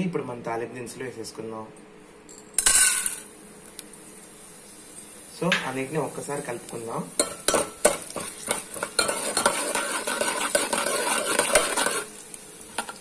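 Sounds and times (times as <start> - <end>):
oil sizzling: 2.6 - 13.0
spoon stirring and scraping pot: 7.2 - 13.0.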